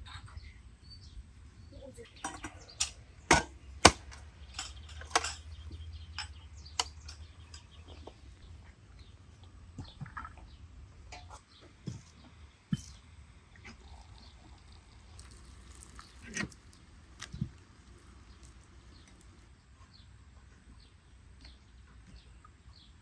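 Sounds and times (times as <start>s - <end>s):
tableware clinking and knocking: 2.2s - 8.0s.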